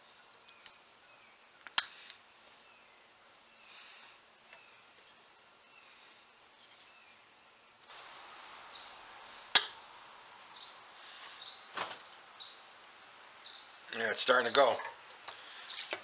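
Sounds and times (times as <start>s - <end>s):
faint bird chirps: 0.0s - 9.9s, 10.5s - 14.1s
steady hiss: 0.0s - 16.0s
sharp click: 9.6s - 9.8s.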